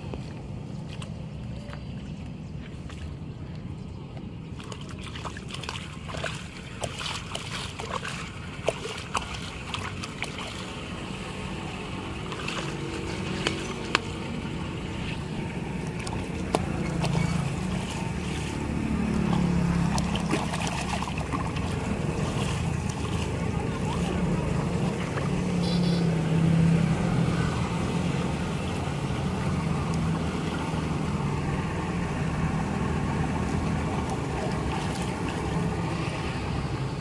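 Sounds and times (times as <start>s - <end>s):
water sloshing and splashing: 0.0s - 37.0s
water rushing through culvert: 4.5s - 37.0s.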